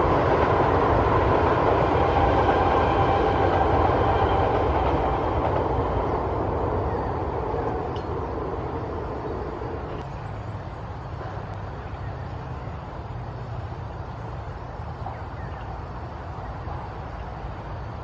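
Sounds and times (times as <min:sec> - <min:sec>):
low outdoor background rumble: 0:00.0 - 0:18.0.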